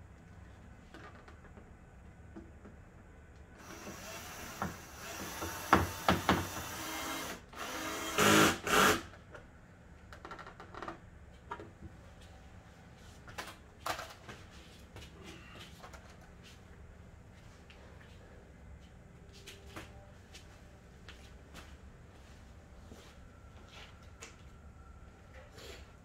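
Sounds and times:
cordless drill driving screws: 0:03.6 - 0:09.1.

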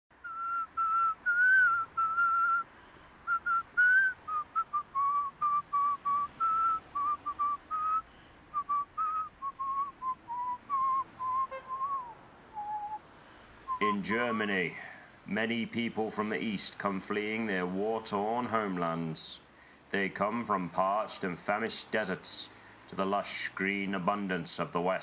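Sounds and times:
person whistling a tune: 0:00.2 - 0:02.7, 0:03.3 - 0:13.1.

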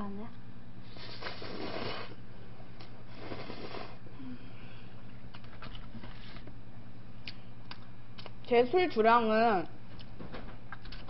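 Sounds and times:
low electrical hum: 0:00.0 - 0:11.0
noisy slurp: 0:00.9 - 0:02.2, 0:03.1 - 0:04.0.

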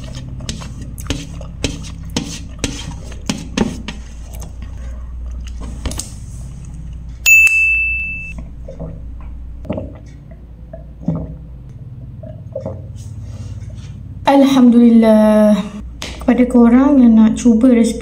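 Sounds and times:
fingers scraping a metal tray: 0:00.0 - 0:04.3
bright metallic ding: 0:07.2 - 0:08.4.

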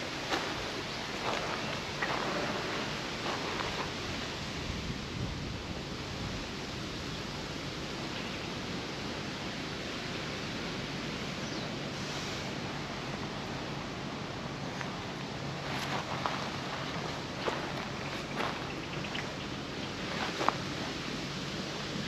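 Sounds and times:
rushing outdoor noise: 0:00.0 - 0:22.0.

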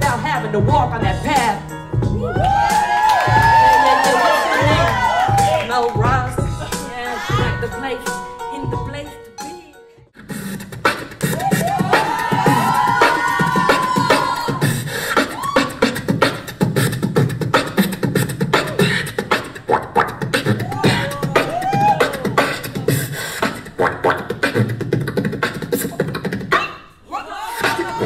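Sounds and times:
beatboxing into a microphone: 0:00.0 - 0:28.0
gliding vocal tones: 0:10.2 - 0:28.0.

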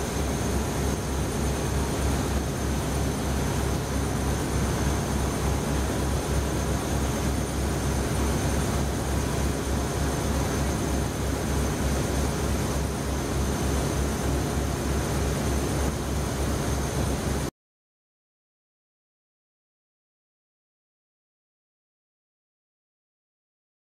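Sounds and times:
boat diesel engine throbbing: 0:00.0 - 0:17.5.

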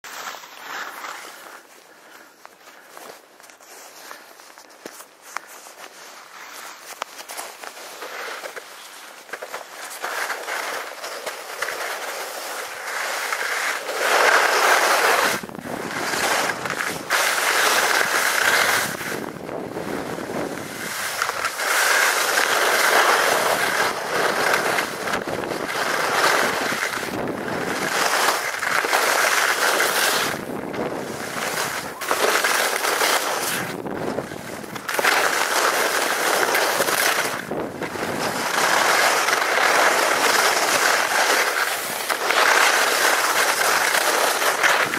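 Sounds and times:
skis scraping over snow: 0:00.1 - 0:44.9.

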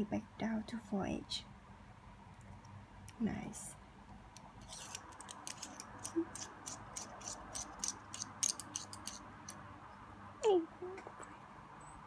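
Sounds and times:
small metal clicks: 0:04.3 - 0:09.6.

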